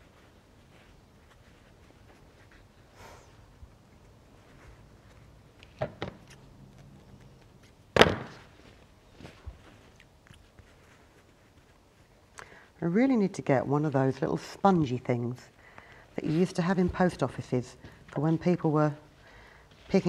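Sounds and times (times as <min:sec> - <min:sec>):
fabric rustling on tabletop: 0:00.0 - 0:05.9, 0:07.5 - 0:12.3, 0:14.0 - 0:20.0
loud thump: 0:08.0 - 0:08.5.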